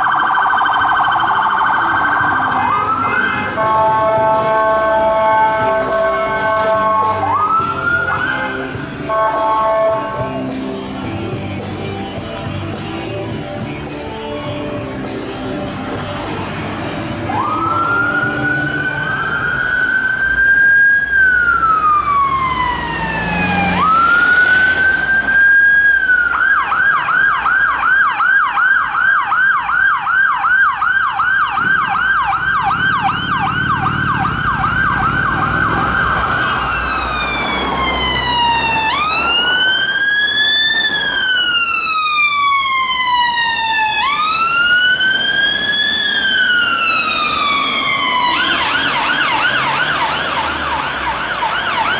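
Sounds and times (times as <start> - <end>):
rapid yelp siren: 0.0 - 9.9, 17.2 - 51.9
harsh siren wail: 0.0 - 10.4, 17.2 - 51.9
emergency vehicle siren wailing: 0.0 - 12.2, 13.1 - 51.9.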